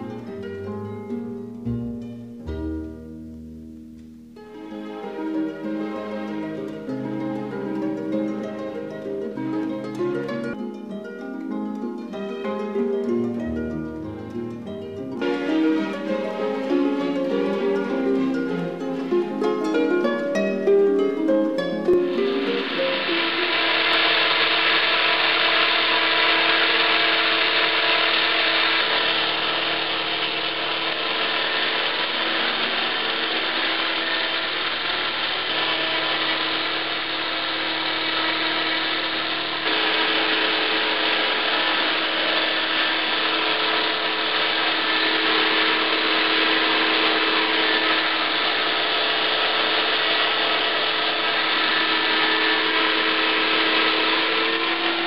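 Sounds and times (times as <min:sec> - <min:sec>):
electric motor whine: 0:21.8 - 0:55.0
helicopter rotor noise: 0:22.1 - 0:55.0.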